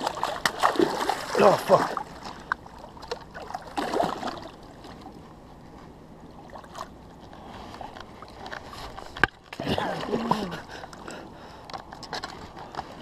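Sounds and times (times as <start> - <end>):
river water splashing: 0.0 - 5.3, 6.2 - 11.3.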